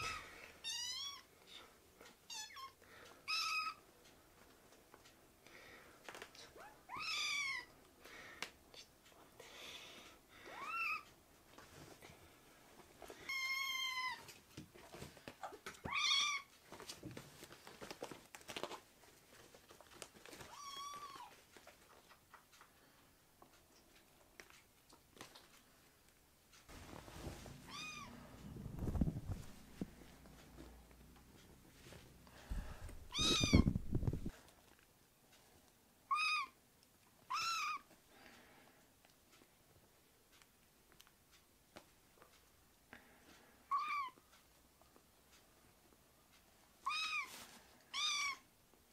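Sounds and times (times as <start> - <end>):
clothing rustling: 26.7 - 30.8
kitten mewing: 33.1 - 34.2.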